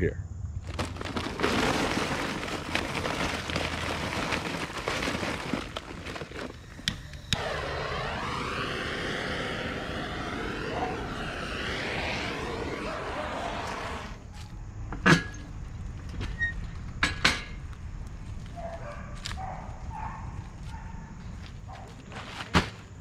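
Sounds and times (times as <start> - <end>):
gas torch hissing roar: 6.7 - 14.2.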